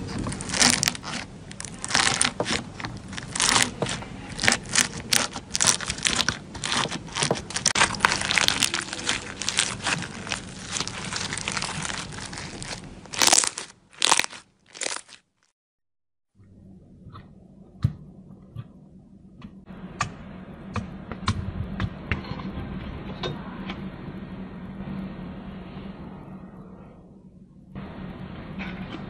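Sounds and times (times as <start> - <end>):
slime beads crunching: 0.0 - 15.5.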